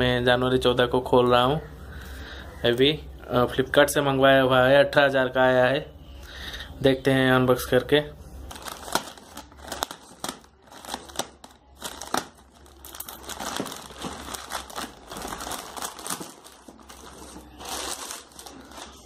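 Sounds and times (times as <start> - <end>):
plastic bag crinkling: 8.4 - 19.0.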